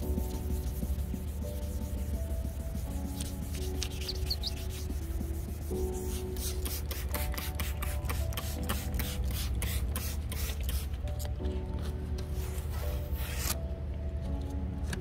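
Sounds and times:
hand sanding strokes on plastic: 0.0 - 10.8
background music: 0.0 - 15.0.

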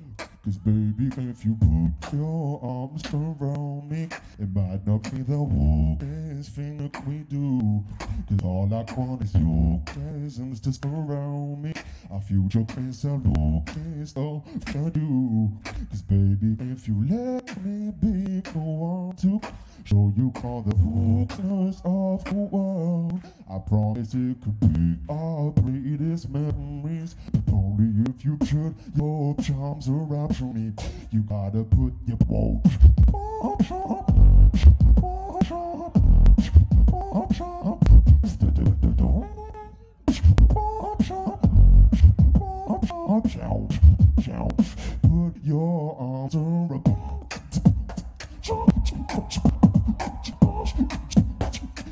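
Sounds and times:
person beatboxing: 0.0 - 51.9
deep bass line: 34.1 - 35.2, 35.9 - 37.2, 37.8 - 39.3, 40.1 - 40.8, 41.4 - 45.3.

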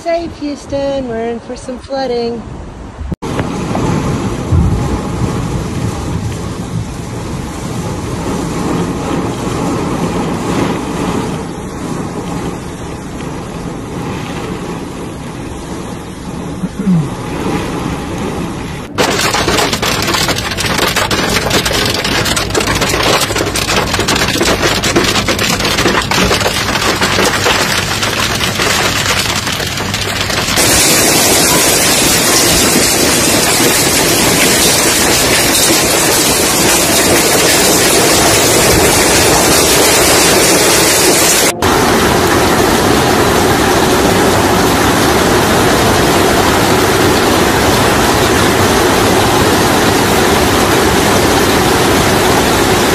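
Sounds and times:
hail and heavy rain pelting: 3.2 - 15.8, 16.4 - 52.9
hailstones clicking: 18.9 - 42.4.

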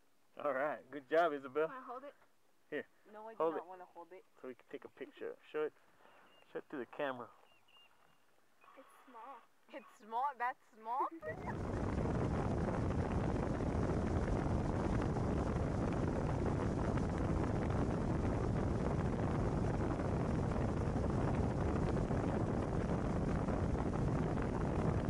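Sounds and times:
wind buffeting microphone: 11.2 - 25.0.

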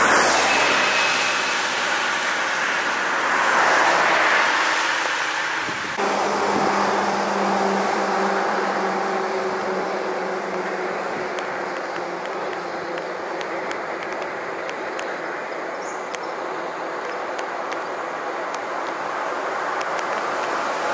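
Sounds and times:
vehicle passing close: 0.0 - 13.4
hum of vehicle engines: 0.0 - 20.9.

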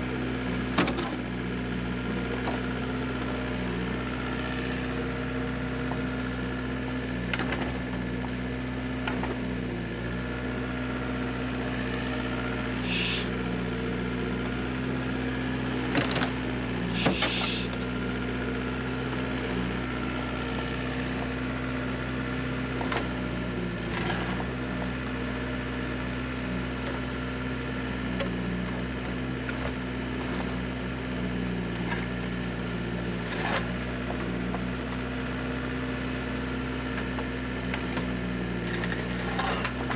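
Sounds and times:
excavator diesel engine running: 0.1 - 39.9
brief hisses: 12.8 - 13.3, 16.9 - 17.7.

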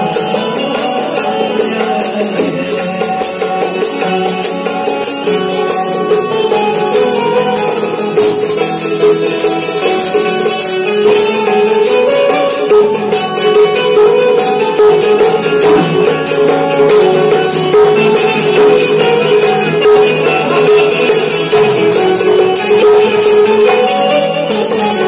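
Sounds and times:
jingling percussion beat: 0.0 - 25.0
keyboard backing: 0.0 - 25.0
keyed banjo melody: 0.0 - 25.0.

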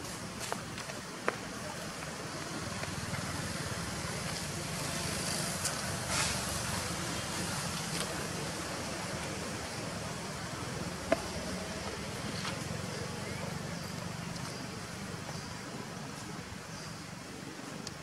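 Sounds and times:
faint sharp clicks: 17.8 - 18.0.

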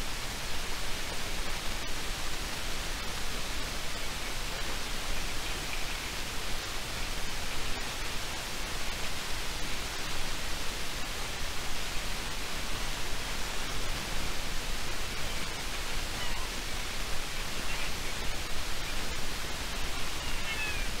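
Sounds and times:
steady rushing river: 0.0 - 21.0.

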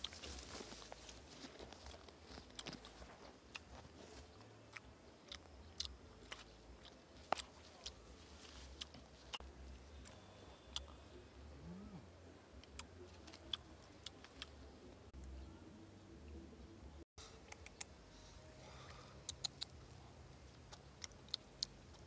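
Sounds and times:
twigs snapping and clicking: 0.0 - 3.7
leaves rustling: 0.0 - 4.4, 7.1 - 9.4.

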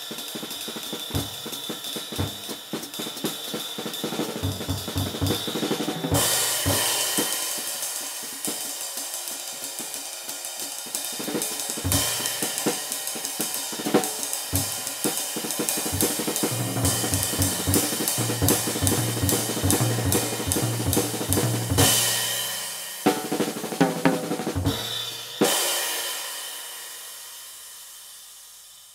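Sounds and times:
drum kit playing: 0.0 - 27.1
sizzling ride cymbal: 0.0 - 28.9
cymbal crashes: 4.4 - 19.1, 24.6 - 28.7.

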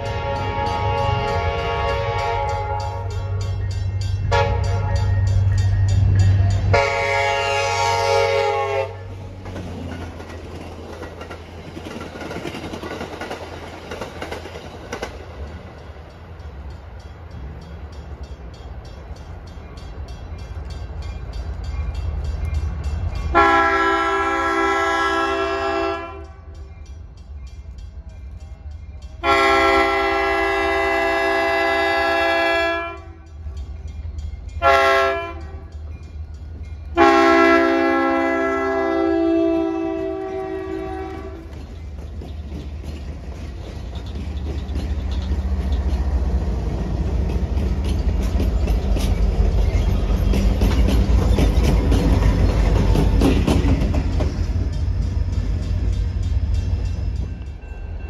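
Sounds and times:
train horn blasts: 0.0 - 3.5, 4.2 - 9.3, 23.3 - 26.6, 29.2 - 33.3, 34.6 - 35.8, 37.0 - 41.5
passing train rumble and wheel noise: 0.0 - 58.0.

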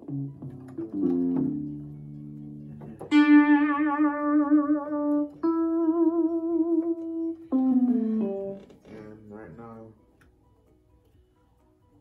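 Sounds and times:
synthesizer notes: 0.0 - 8.8.

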